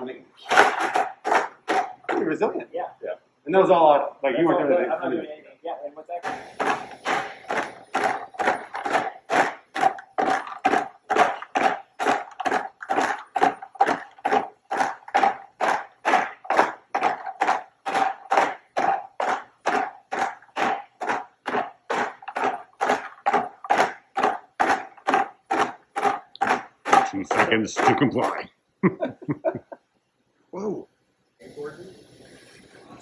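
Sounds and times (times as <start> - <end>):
robot footsteps with motor tone: 6.2 - 28.5.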